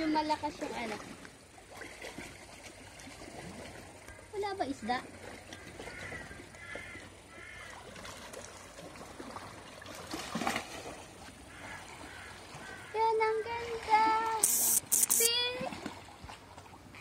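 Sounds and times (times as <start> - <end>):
crows cawing faintly: 5.5 - 8.0, 11.4 - 13.6.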